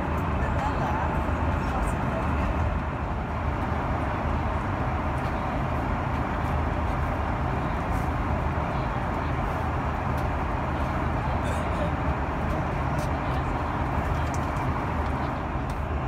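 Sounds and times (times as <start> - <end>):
airliner cabin engine roar: 0.0 - 16.0.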